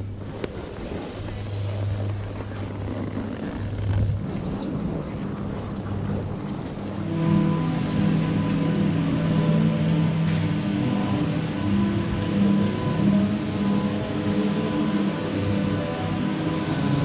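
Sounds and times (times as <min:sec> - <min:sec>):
even wash of noise: 0:00.0 - 0:17.0
low hum: 0:00.0 - 0:17.0.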